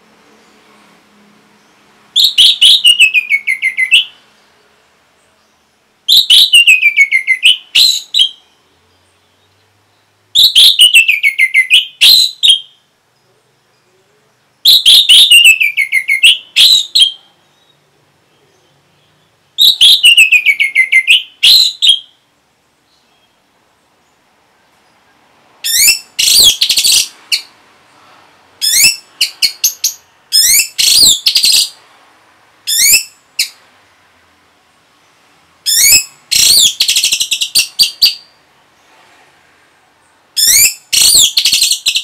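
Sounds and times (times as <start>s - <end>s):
songbird phrase: 1.5s - 25.3s.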